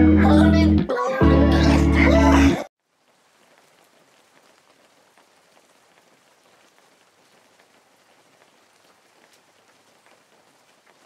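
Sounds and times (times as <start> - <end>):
light crackles: 2.8 - 11.0
water patter: 2.8 - 11.0.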